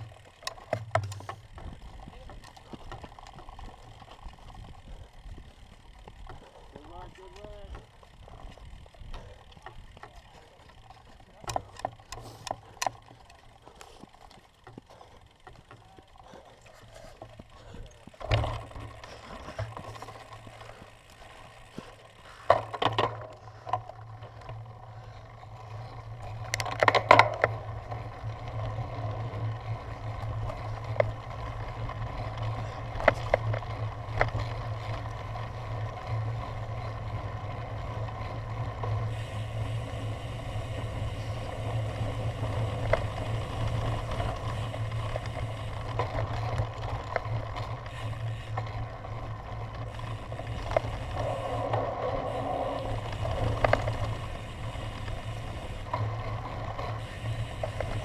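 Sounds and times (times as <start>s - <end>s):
bike knocks and rattles: 0.0s - 28.0s, 29.9s - 37.1s
bike tyres rolling rumble: 0.0s - 58.0s.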